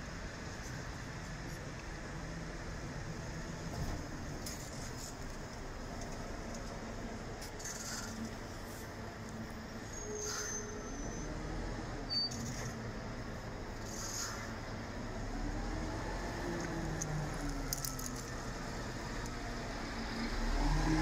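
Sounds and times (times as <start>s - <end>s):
short high squeaks: 7.6s - 8.3s, 9.9s - 11.4s, 12.1s - 12.8s, 13.8s - 14.5s
bus engine passing: 10.8s - 21.0s.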